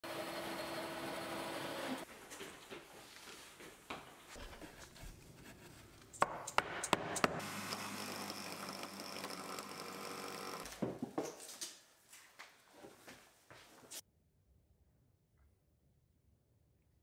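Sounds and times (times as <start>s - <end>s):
power tool whining: 0.1s - 2.0s, 7.4s - 10.8s.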